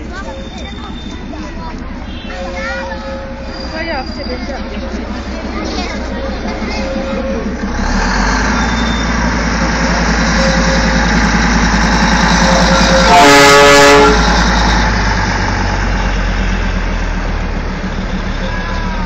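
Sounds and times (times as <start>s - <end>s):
train rhythmic rumble: 0.0s - 19.0s
locomotive whistle blast: 10.2s - 14.4s.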